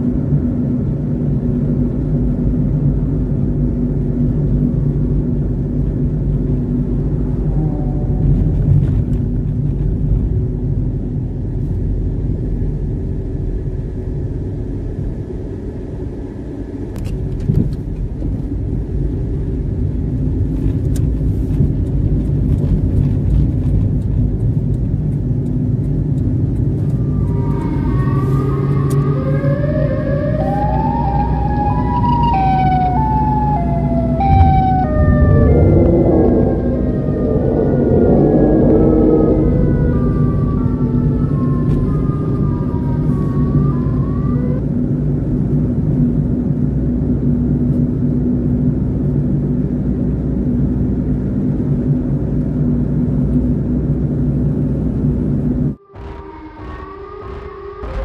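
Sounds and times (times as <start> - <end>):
car road and engine rumble: 0.0 - 58.0
short siren-like tones: 7.2 - 8.8, 26.4 - 44.6, 55.7 - 58.0.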